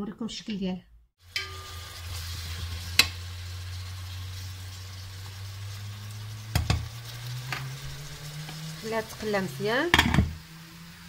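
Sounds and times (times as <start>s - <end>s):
food sizzling in oil: 1.2s - 11.0s
spoon knocking on pot: 6.5s - 6.8s, 9.9s - 10.4s.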